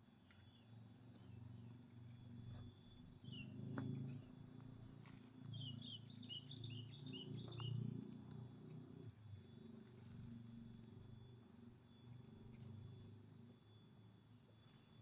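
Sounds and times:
bird chirping: 0.2s - 15.0s.

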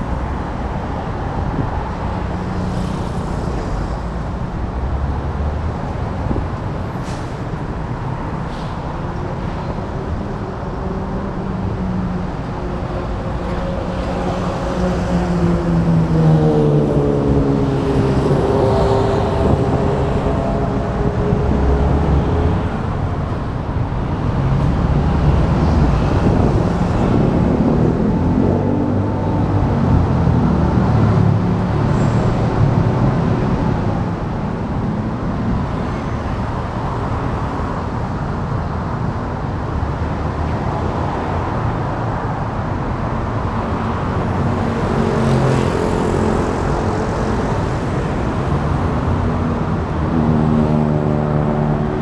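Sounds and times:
road traffic rumble: 0.0s - 52.0s.

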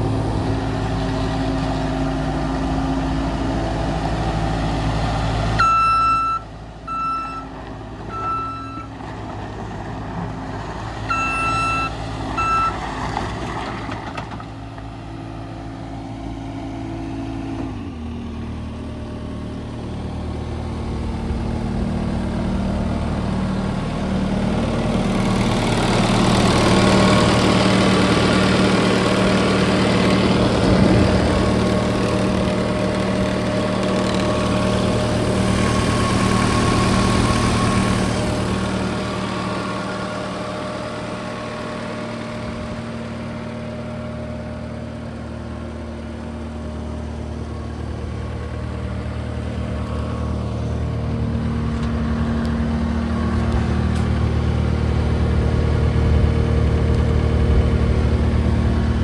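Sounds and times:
diesel engine running: 0.0s - 59.0s
backup alarm beeps: 5.6s - 7.5s, 8.1s - 8.9s, 11.1s - 12.8s.

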